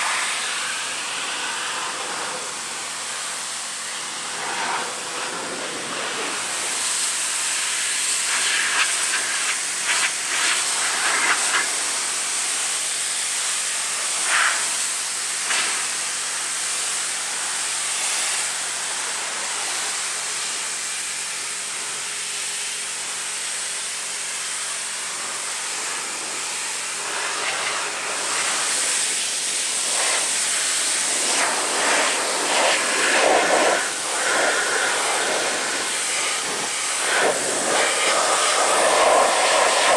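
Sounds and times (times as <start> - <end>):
pressure washer hissing: 0.0 - 39.9.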